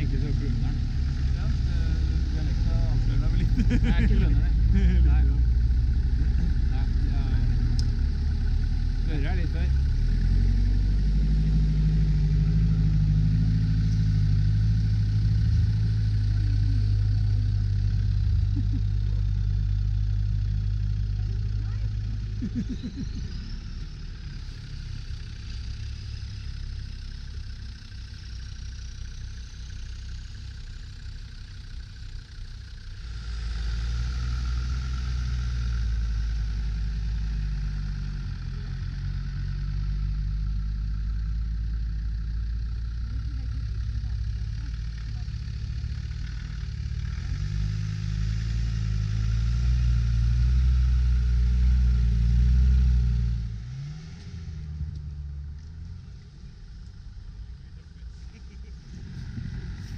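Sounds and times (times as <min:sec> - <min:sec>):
vehicle engines driving through snow: 0:00.0 - 0:59.9.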